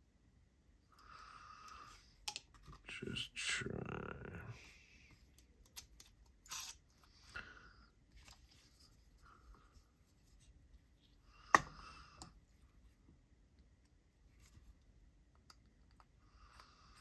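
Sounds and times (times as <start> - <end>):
folding knife clicks and scraping: 5.6 - 6.8.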